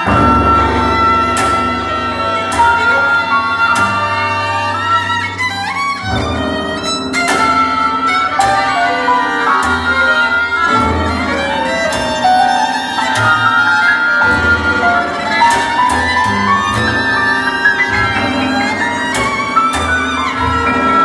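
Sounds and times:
sharp struck accents: 0:00.0 - 0:05.5
low held notes: 0:00.0 - 0:12.4
violin playing: 0:00.0 - 0:21.0.

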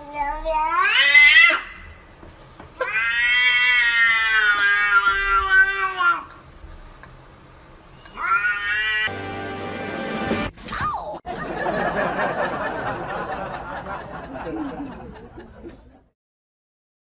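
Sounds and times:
cat meowing: 0:00.2 - 0:01.7, 0:02.8 - 0:06.3, 0:08.0 - 0:09.1.

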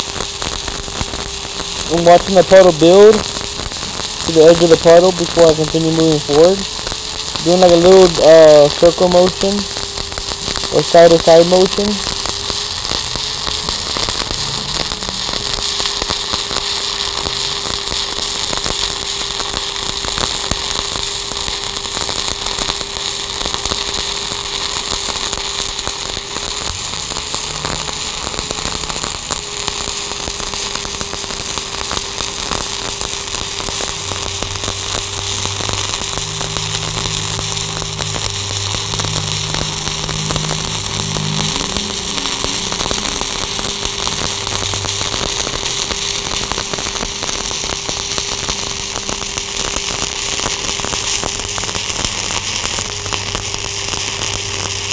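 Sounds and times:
steady hum: 0:00.0 - 0:54.9
welding arc crackling: 0:00.0 - 0:54.9
deeper hum: 0:01.4 - 0:17.8, 0:32.7 - 0:54.9.

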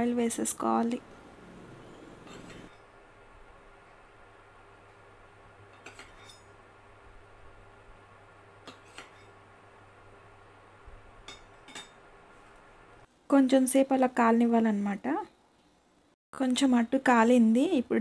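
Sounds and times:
metal spoon clinking on cookware: 0:05.7 - 0:06.6, 0:11.2 - 0:12.0.

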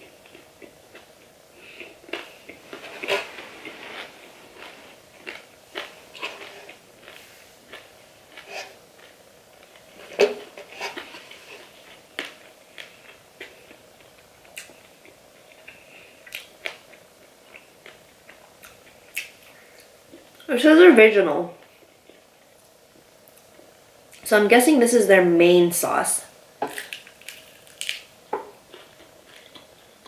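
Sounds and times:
chewing crispy fried chicken: 0:00.0 - 0:20.5, 0:26.7 - 0:30.0.

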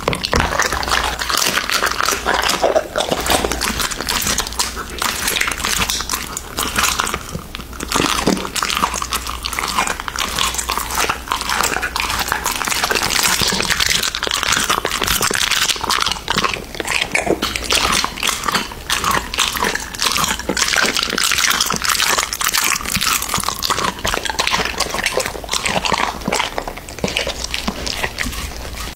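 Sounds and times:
dog chewing meat: 0:00.0 - 0:28.9
dog licking wooden plate: 0:00.0 - 0:28.9.

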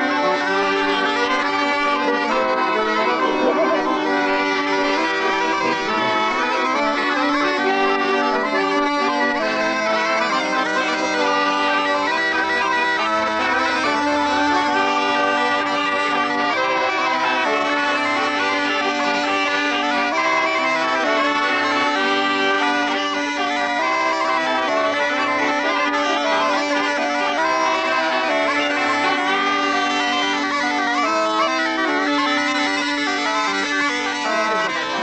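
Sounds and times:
bagpipe music: 0:00.0 - 0:35.0.

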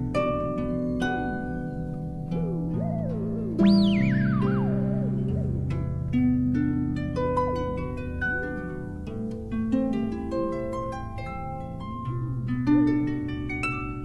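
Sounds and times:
plucked harp-like notes: 0:00.0 - 0:14.0
wavering gliding tone: 0:00.8 - 0:08.7
held low tones: 0:01.1 - 0:08.6.

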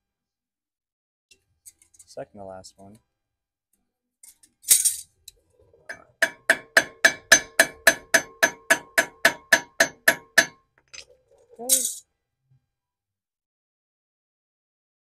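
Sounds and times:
hammer striking metal nut: 0:05.9 - 0:10.6
tool clattering: 0:05.9 - 0:10.6.

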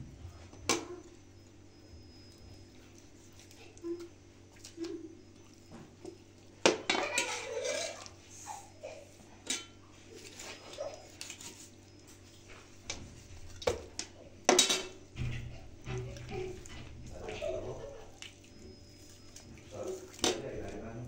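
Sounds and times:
knife scraping metal tray: 0:06.9 - 0:08.1.

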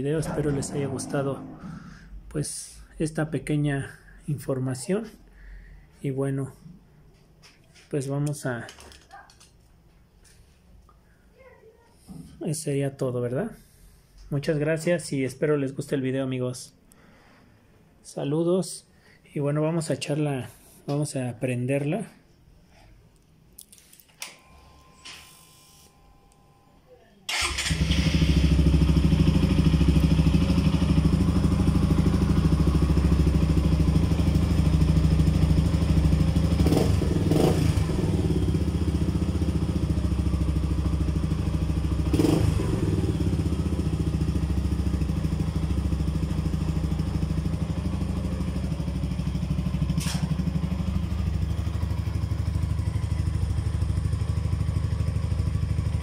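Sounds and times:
motorcycle engine starting and idling: 0:27.3 - 0:56.0.

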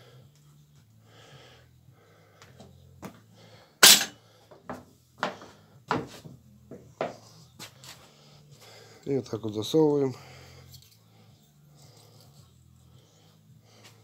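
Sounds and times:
metal engine parts clanking: 0:03.8 - 0:04.2.

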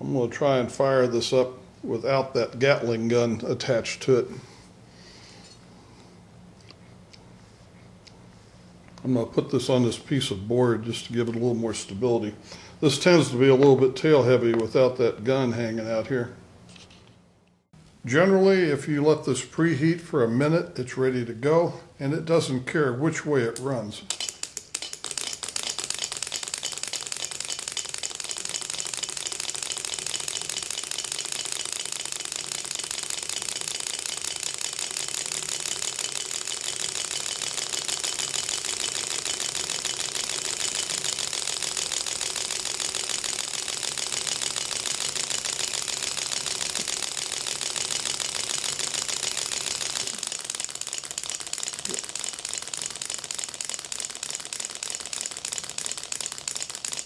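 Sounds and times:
engine rapid steady clicking: 0:24.2 - 0:57.0.

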